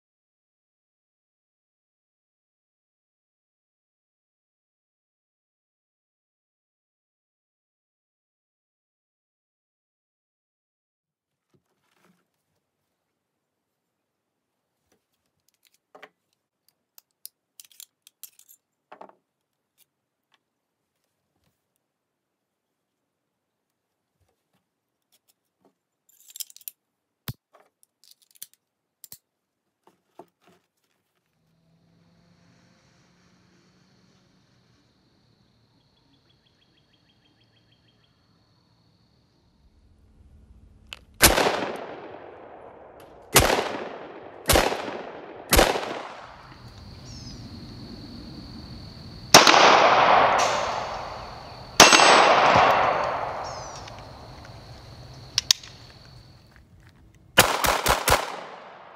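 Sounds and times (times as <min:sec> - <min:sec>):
metal clatter of pistol: 0:15.3 - 0:19.9, 0:25.0 - 0:26.8, 0:27.5 - 0:29.3
pistol shots: 0:41.2 - 0:46.6, 0:49.3 - 0:54.6, 0:57.4 - 0:58.9
pistol hammer clicking: 0:50.4 - 0:54.6, 0:55.3 - 0:55.8.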